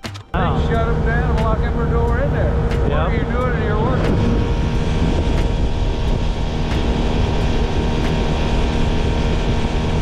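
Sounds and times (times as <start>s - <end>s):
outboard motor running: 0.3s - 10.0s
water rushing along hull: 0.3s - 10.0s.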